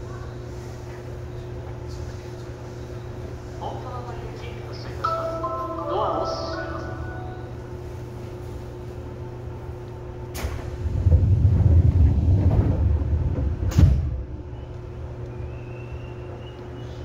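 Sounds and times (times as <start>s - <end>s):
loud low rumbling: 9.5s - 16.6s.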